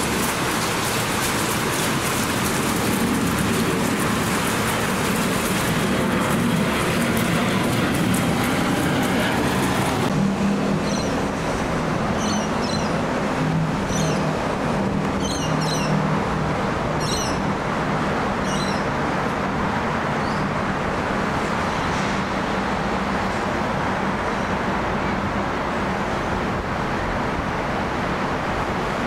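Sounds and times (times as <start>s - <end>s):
distant jet airliner roar: 0.0s - 29.0s
bird chirping: 10.8s - 11.2s, 12.2s - 13.0s.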